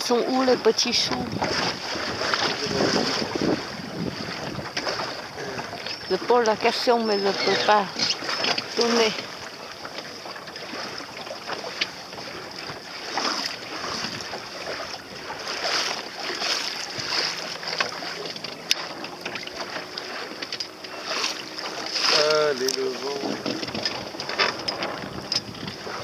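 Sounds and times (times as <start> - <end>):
water lapping against boat hull: 0.0 - 26.0
wind on microphone: 0.6 - 9.4, 13.4 - 15.7, 22.4 - 26.0.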